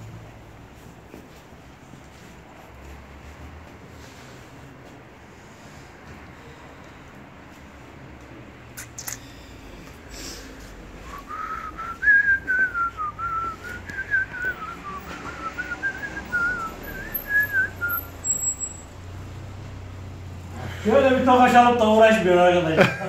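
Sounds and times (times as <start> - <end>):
person whistling a tune: 11.0 - 18.7.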